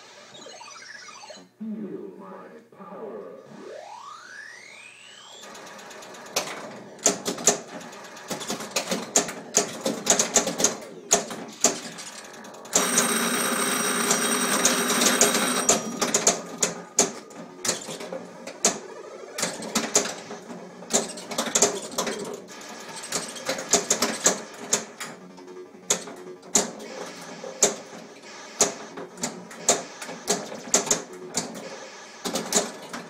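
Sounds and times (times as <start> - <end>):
electronic sound effects: 0.0 - 5.5
pinball machine clicks and clacks: 5.4 - 33.0.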